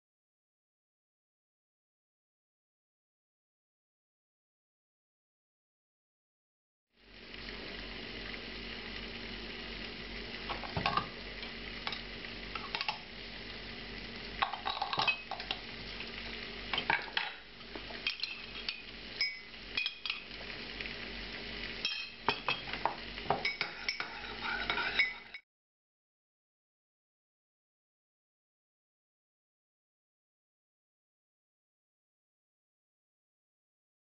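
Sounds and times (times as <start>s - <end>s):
low hum and hiss: 7.0s - 25.4s
spoon clinking and scraping bowl: 12.6s - 13.0s, 14.4s - 15.6s, 18.0s - 20.3s, 21.8s - 25.4s.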